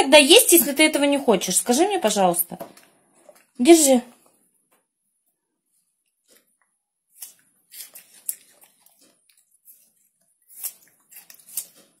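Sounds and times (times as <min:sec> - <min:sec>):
monkey chewing crisp fruit: 0:07.1 - 0:12.0.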